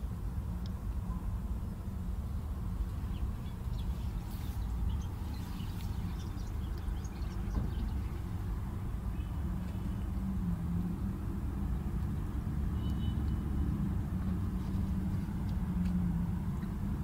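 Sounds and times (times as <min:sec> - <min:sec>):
low background rumble: 0:00.0 - 0:17.0
dry straw nest rustling: 0:03.7 - 0:07.3.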